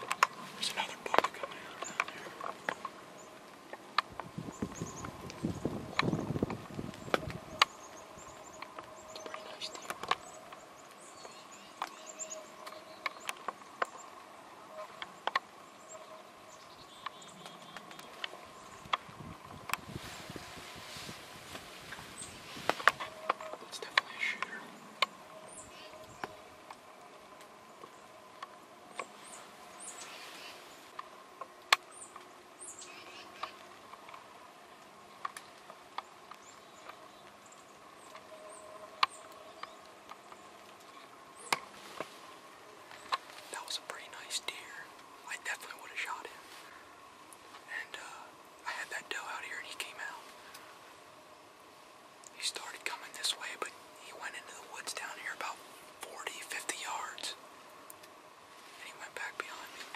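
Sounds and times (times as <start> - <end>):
light ticks and clicks: 0.0 - 4.3, 5.0 - 16.0, 33.4 - 38.3
faint hiss: 0.0 - 59.9
faint steady hum: 0.0 - 59.9.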